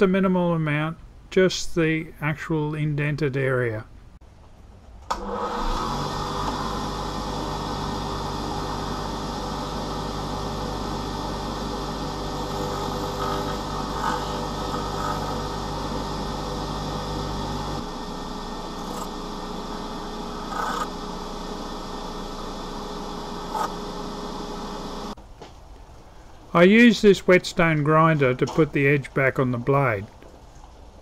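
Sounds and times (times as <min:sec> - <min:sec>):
low hum: 0:03.9 - 0:25.2
bench grinder grinding metal: 0:05.2 - 0:25.2.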